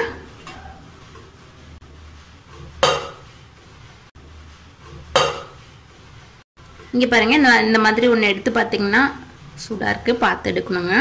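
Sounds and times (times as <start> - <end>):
pressure cooker metal clank: 2.8 - 3.2, 5.1 - 5.6.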